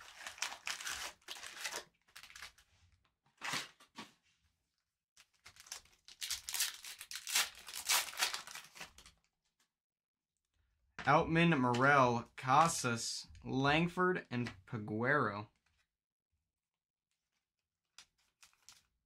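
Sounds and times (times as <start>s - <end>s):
wrapper tearing and crinkling: 0.0s - 2.6s, 5.2s - 9.2s.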